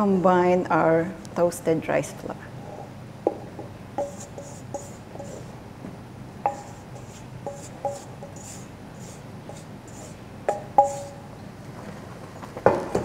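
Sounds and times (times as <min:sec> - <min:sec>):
flour swishing: 0:06.5 - 0:11.2.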